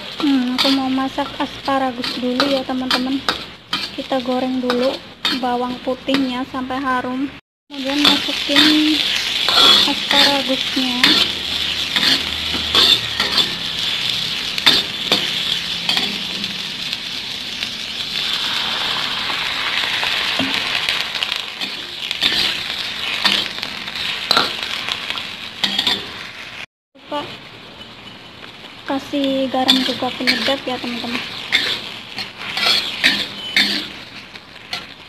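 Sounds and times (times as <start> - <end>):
metal spatula scraping wok: 0.0 - 6.4, 7.8 - 25.0, 25.6 - 26.6, 29.5 - 35.0
stir-fry sizzling in oil: 0.0 - 35.0.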